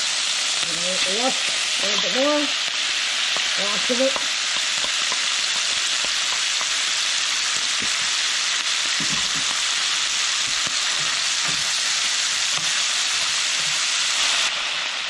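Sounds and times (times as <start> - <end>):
bacon sizzling in a skillet: 0.0 - 15.0
wooden spoon knocking in pan: 3.3 - 6.9, 8.9 - 9.6, 10.4 - 11.7.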